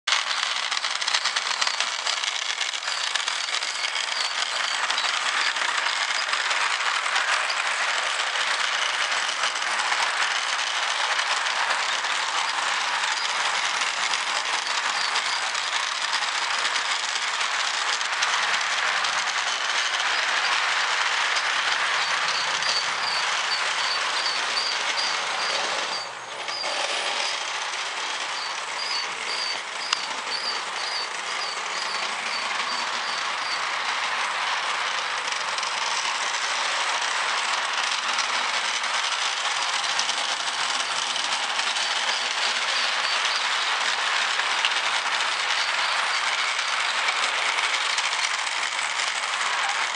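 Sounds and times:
model train wheels clattering: 0.1 - 49.9
quick light ticks: 28.4 - 33.6.

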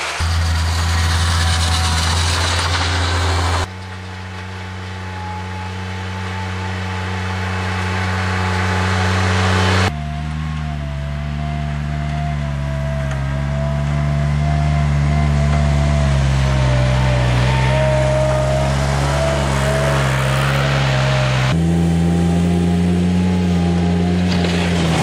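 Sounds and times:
thin whine: 0.0 - 24.6
loader engine running: 0.0 - 25.0.

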